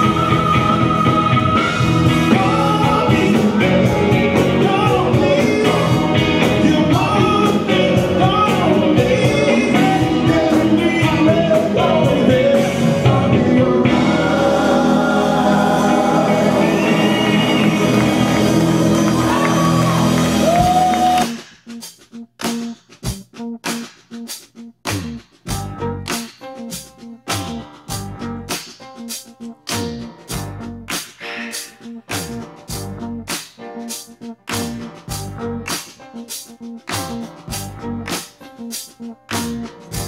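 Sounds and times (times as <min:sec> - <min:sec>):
lead vocalist singing: 0:00.0 - 0:21.1
live band playing: 0:00.0 - 0:40.0.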